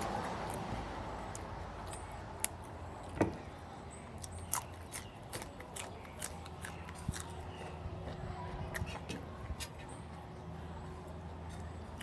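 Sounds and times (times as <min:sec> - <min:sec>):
crunching raw bean: 0:04.1 - 0:09.8.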